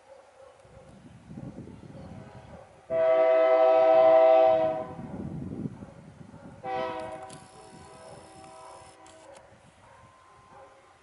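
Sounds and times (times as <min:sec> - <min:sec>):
locomotive air horn blasts: 0:02.9 - 0:05.0, 0:06.6 - 0:07.4, 0:08.3 - 0:09.2.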